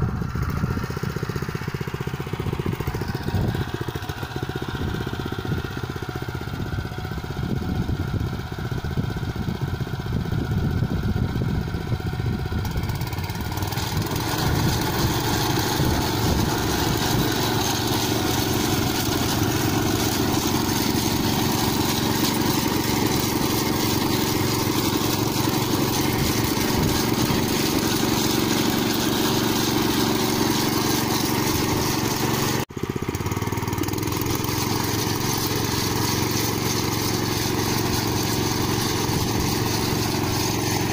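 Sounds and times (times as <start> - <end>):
small petrol engine running: 0.0 - 40.9.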